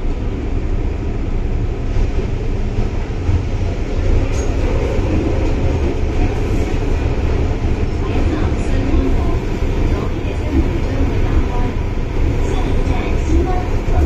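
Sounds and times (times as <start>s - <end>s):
train rumbling on rails: 0.0s - 14.0s.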